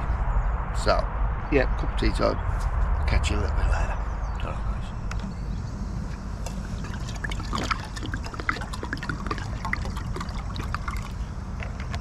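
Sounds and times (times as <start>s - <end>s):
water pouring into a kettle: 6.8s - 11.2s.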